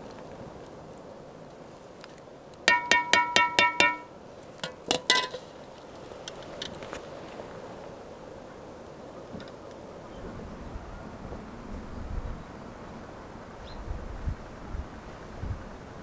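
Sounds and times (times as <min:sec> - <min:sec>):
skimmer clinking against metal pan: 0:02.7 - 0:05.4.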